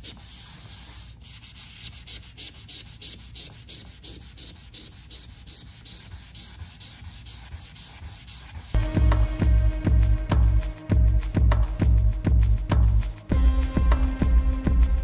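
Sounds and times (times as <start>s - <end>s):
sponge scrubbing a wall: 0.0s - 8.8s.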